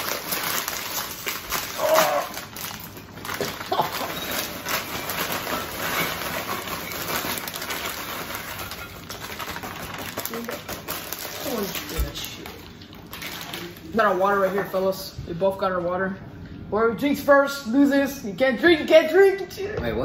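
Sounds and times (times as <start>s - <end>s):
chips pouring into glass bowls: 0.0s - 14.7s
plastic bags crinkling: 0.0s - 15.1s.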